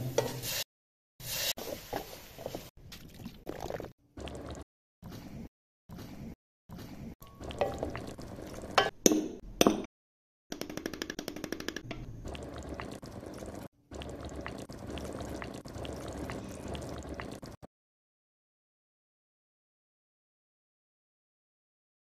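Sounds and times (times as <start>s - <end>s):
soup simmering in a pot: 3.3s - 4.6s, 7.4s - 8.8s, 12.2s - 17.6s
soup being stirred: 7.2s - 8.9s
liquid poured into a pot: 7.4s - 8.8s, 12.2s - 17.6s.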